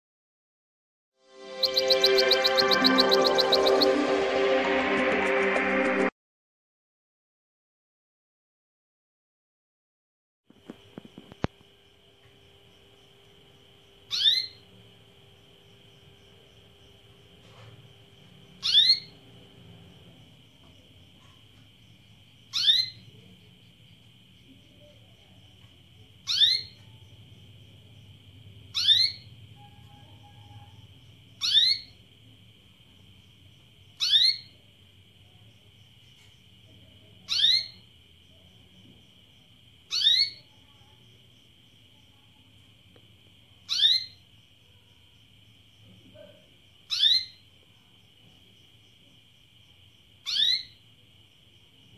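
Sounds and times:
canary call: 0:01.4 - 0:04.3, 0:14.1 - 0:14.6, 0:18.6 - 0:19.2, 0:22.5 - 0:23.1, 0:26.2 - 0:26.8, 0:28.7 - 0:30.7, 0:31.4 - 0:32.0, 0:37.3 - 0:37.8, 0:43.7 - 0:44.2, 0:50.2 - 0:50.8.

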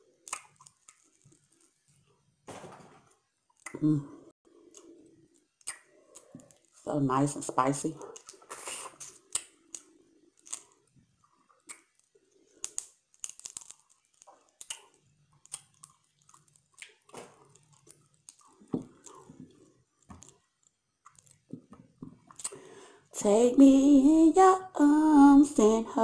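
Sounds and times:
mouth chewing shrimp: 0:08.0 - 0:22.6.

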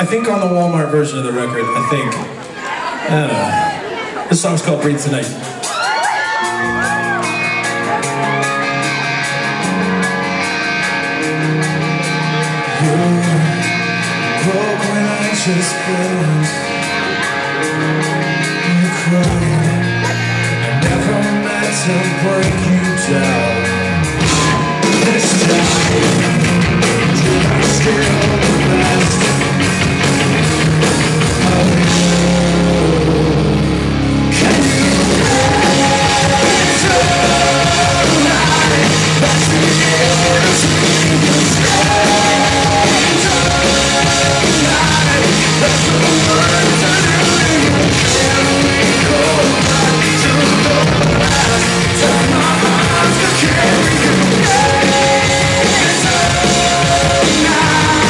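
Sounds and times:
live rock band playing: 0:00.0 - 0:58.0
man singing: 0:12.5 - 0:29.6, 0:31.1 - 0:58.0.

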